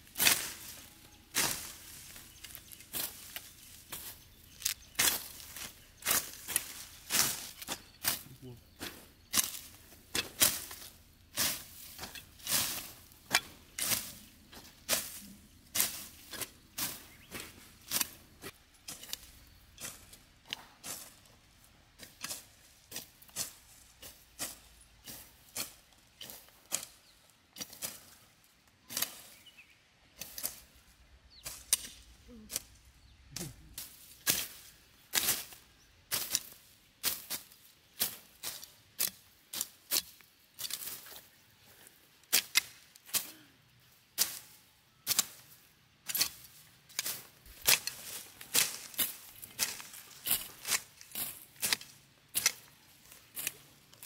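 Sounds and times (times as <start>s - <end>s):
machetes slashing grass: 11.4s - 18.2s, 46.1s - 53.6s.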